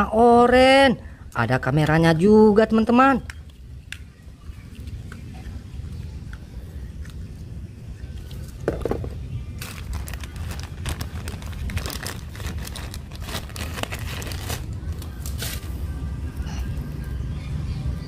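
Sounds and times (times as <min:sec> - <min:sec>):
plastic bag crinkling: 0:08.8 - 0:15.6.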